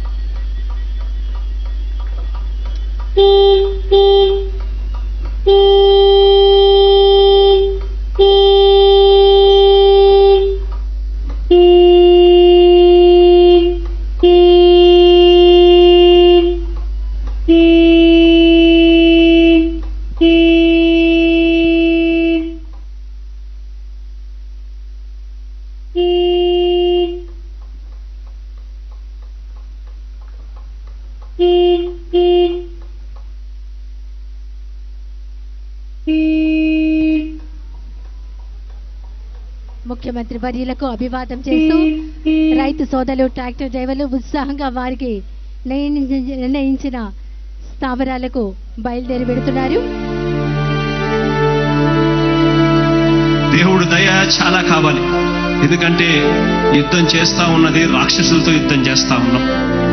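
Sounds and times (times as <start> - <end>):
tractor horn blasts: 2.8 - 4.6, 5.5 - 10.7, 11.5 - 16.8, 17.4 - 22.7, 25.9 - 27.4, 31.4 - 32.9, 36.0 - 37.5, 41.4 - 42.9, 51.6 - 59.9.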